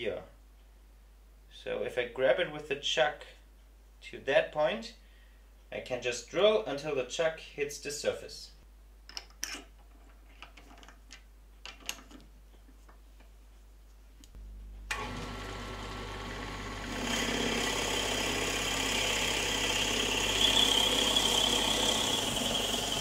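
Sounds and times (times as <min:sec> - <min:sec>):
drill bit boring into wood: 0:14.9 - 0:23.0
wood lathe running: 0:14.9 - 0:23.0.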